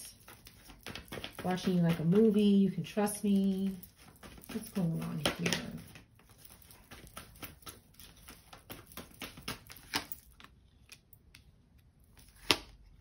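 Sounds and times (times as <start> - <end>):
cards clicking and tapping on table: 0.1 - 2.5, 3.6 - 11.5.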